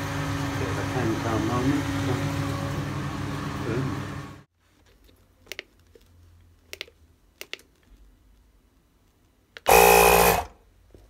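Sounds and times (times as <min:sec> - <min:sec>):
machine starting running: 0:09.7 - 0:10.5.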